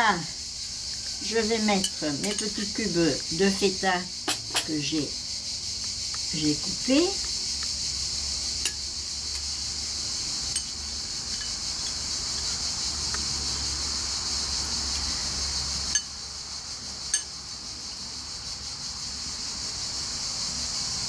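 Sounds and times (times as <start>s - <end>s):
high-pitched insect chorus: 0.0s - 21.0s
fork clinking against glass bowl: 10.5s - 11.6s.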